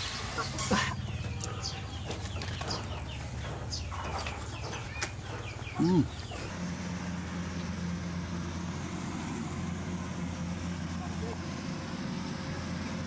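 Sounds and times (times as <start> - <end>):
man humming while eating: 5.8 - 6.2.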